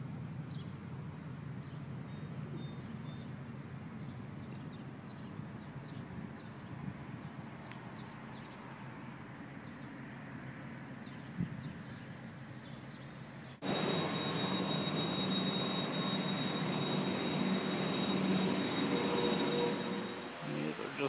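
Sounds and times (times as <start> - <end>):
bird chirps: 11.1 - 20.7
low rumble and hiss: 13.6 - 21.0
thin high whine: 13.6 - 21.0.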